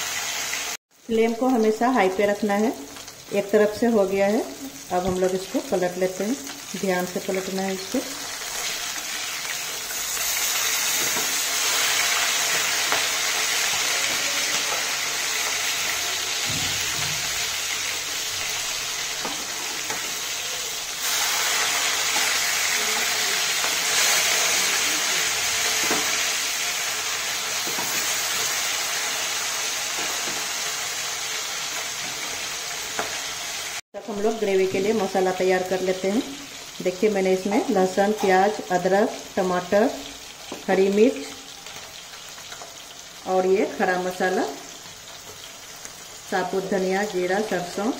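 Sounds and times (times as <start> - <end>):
fish sizzling in hot oil: 0.0 - 33.8, 34.6 - 47.9
spatula scraping and tapping pan: 19.2 - 20.2.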